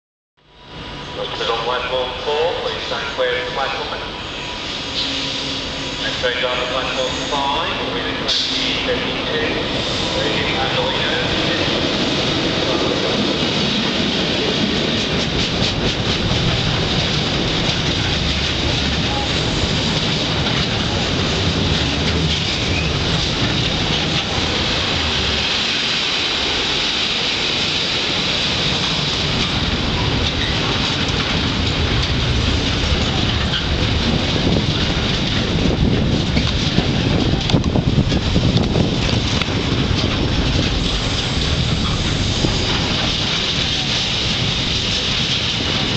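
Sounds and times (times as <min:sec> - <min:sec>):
steel wheels rumbling on rail: 0:00.4 - 0:45.9
wheels clattering over track: 0:11.7 - 0:25.4, 0:28.7 - 0:45.9.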